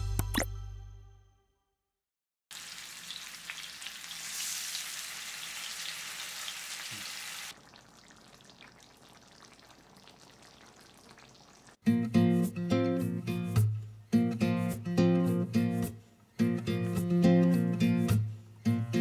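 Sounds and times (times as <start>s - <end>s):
fish sizzling in oil: 2.5s - 11.8s
soft simmering sizzle: 2.5s - 11.8s.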